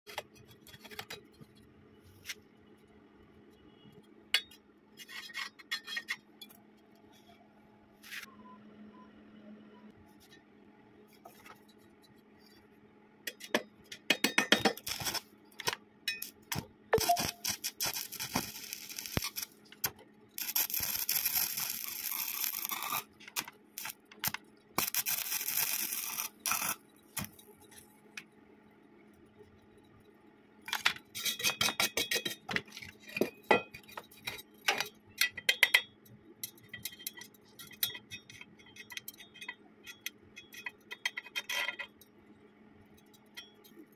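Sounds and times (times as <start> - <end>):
welding arc crackling: 14.7 - 15.3, 16.5 - 27.4.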